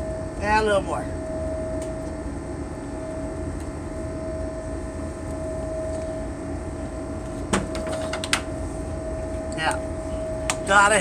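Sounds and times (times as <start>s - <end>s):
low drone of boat machinery: 0.0s - 11.0s.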